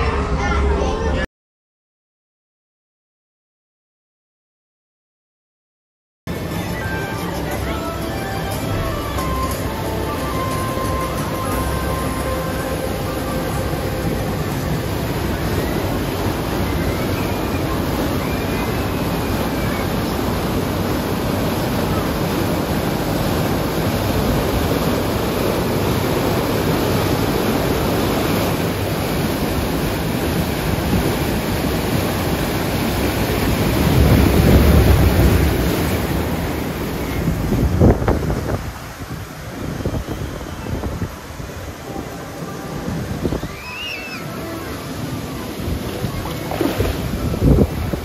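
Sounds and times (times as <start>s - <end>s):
rushing white water rapids: 6.3s - 48.0s
wind buffeting microphone: 13.0s - 43.6s, 45.3s - 48.0s.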